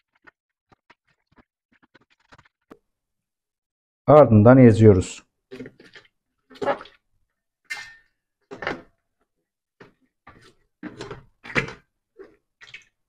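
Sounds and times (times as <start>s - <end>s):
grapes squishing under glass jar: 5.5s - 7.1s.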